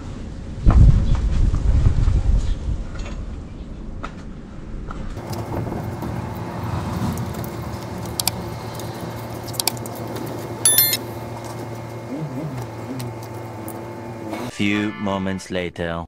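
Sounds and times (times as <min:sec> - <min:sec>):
low motor hum: 0:05.2 - 0:14.5
shrill high-pitched tone: 0:10.7 - 0:11.0.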